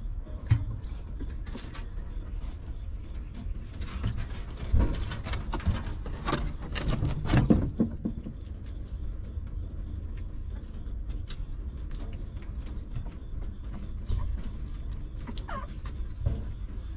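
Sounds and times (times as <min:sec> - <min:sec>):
dog moving clicks and rustles: 0:03.4 - 0:08.2.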